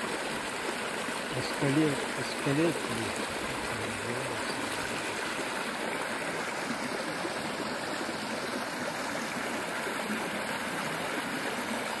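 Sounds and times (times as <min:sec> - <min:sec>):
stream pouring over stick dam: 0:00.0 - 0:12.0.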